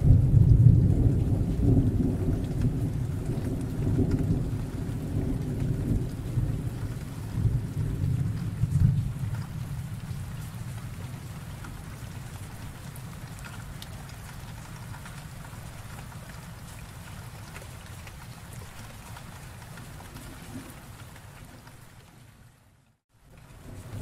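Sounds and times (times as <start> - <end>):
low rumble of thunder: 0.0 - 16.8, 23.4 - 24.0
raindrop hits ticking: 0.0 - 22.2.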